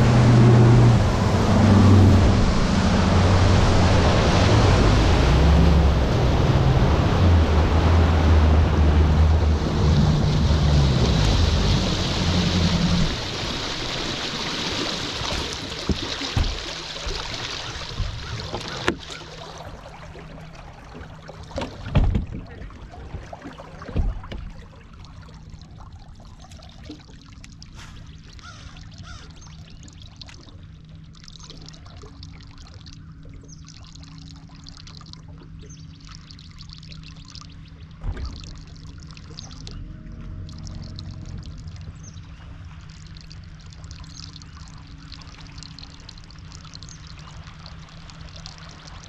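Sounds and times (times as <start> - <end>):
faint steady hum: 0.0 - 49.0
outboard motor rushing: 0.0 - 49.0
water lapping against hull: 0.0 - 49.0
water rushing along hull: 0.0 - 49.0
thumps on boat deck: 15.3 - 16.8, 21.5 - 22.5, 23.2 - 24.6.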